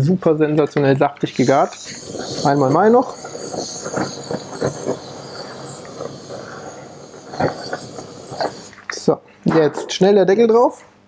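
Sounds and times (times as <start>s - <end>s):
blowtorch flame hissing: 1.2s - 9.0s
crackles and clicks: 1.2s - 9.0s.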